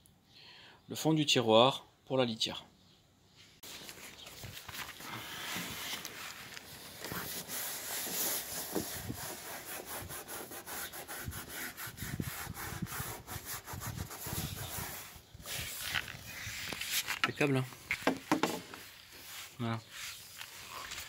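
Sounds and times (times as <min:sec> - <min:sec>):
hands rubbing linoleum: 0:05.1 - 0:17.2
dull knocks: 0:18.0 - 0:18.7.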